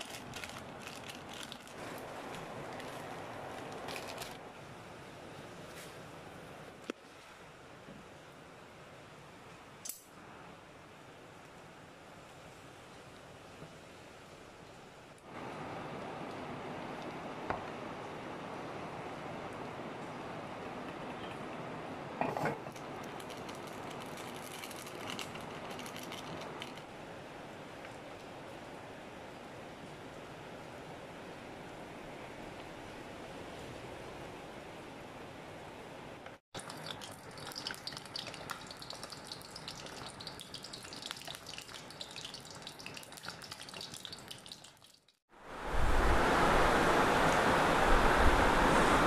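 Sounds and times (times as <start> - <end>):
plastic sachet crinkling: 0.0 - 4.4, 22.8 - 26.8
egg sizzling in hot oil: 36.6 - 45.2
background hiss: 45.4 - 49.0.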